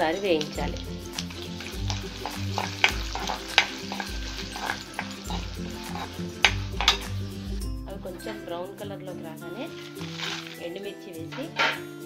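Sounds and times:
seeds sizzling in hot oil: 0:00.0 - 0:08.5, 0:09.5 - 0:12.0
spoon stirring and scraping pan: 0:00.2 - 0:07.6, 0:09.7 - 0:10.6, 0:11.3 - 0:12.0.

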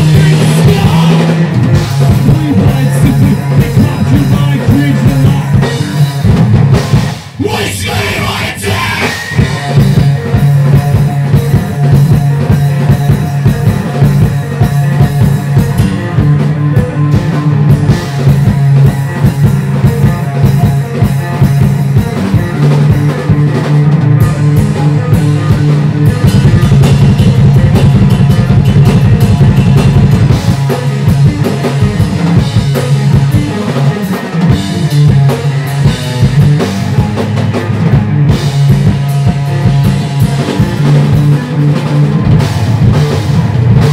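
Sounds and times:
drum kit: 0:00.0 - 0:43.9
electric guitar: 0:00.0 - 0:43.9
loud rock band playing: 0:00.0 - 0:43.9.

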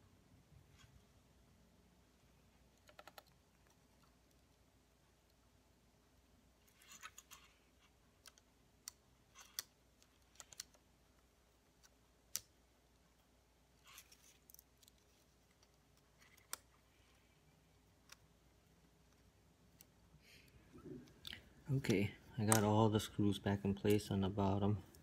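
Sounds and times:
small screwdriver clicking and scratching: 0:06.7 - 0:10.8, 0:13.8 - 0:17.2.

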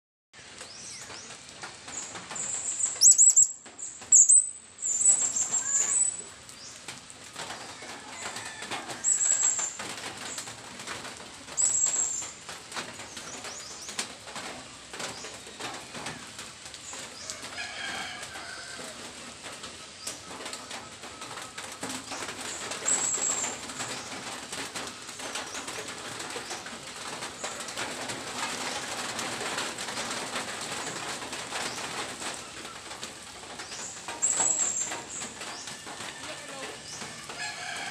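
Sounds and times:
birds chirping: 0:00.6 - 0:06.9, 0:30.7 - 0:37.4.

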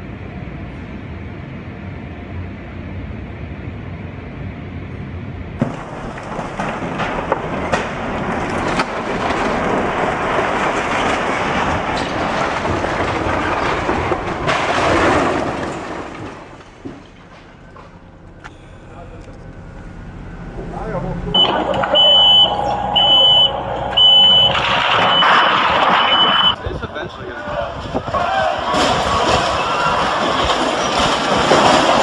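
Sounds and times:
house collapsing: 0:05.6 - 0:18.3, 0:21.3 - 0:32.0
low steady hum: 0:16.2 - 0:26.7.

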